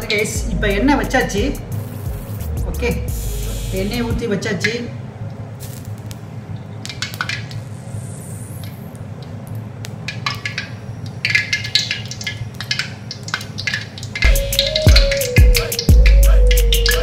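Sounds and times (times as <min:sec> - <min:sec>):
background music: 0:00.0 - 0:04.4, 0:14.2 - 0:17.0.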